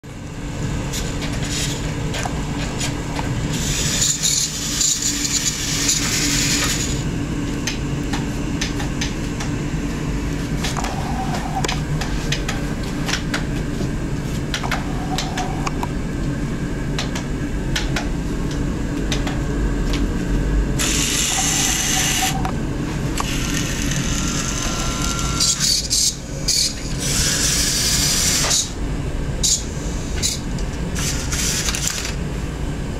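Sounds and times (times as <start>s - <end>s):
toy motor whirring: 3.5s - 7.0s, 20.8s - 22.4s, 23.2s - 28.8s, 29.4s - 30.4s, 31.0s - 32.1s.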